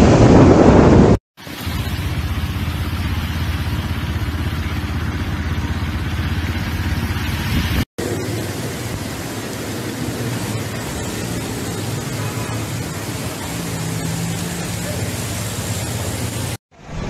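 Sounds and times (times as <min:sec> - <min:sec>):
heavy rain and wind hissing: 0:00.0 - 0:05.4, 0:06.8 - 0:16.6
low rumble with fast flutter: 0:00.0 - 0:11.8.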